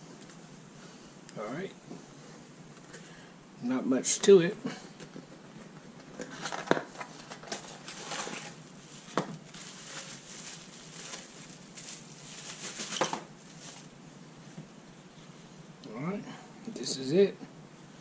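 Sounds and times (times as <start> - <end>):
plastic bag rustling: 5.9 - 14.0.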